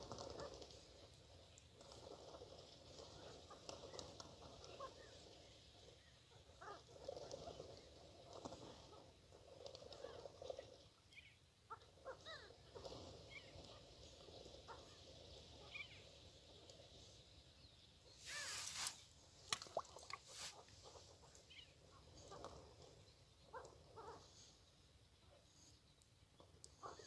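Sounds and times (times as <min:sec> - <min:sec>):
rushing noise of wings: 0:00.0 - 0:10.9, 0:18.2 - 0:23.7
birds chuckling calls: 0:18.2 - 0:18.9.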